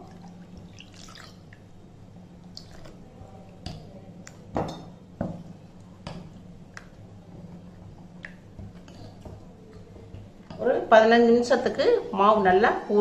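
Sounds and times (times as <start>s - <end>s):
water pouring into batter: 0.0s - 1.7s
spoon stirring wet batter: 0.0s - 11.8s.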